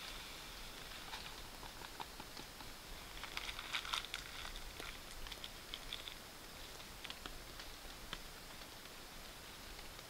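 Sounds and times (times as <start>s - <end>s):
light rain patter: 0.0s - 10.0s
food packet crinkling: 3.1s - 6.2s.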